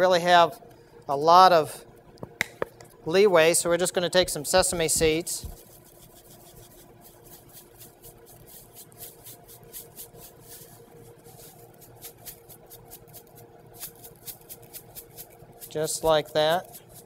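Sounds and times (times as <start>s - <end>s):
seeds rattling in shaker bottle: 4.8s - 17.0s.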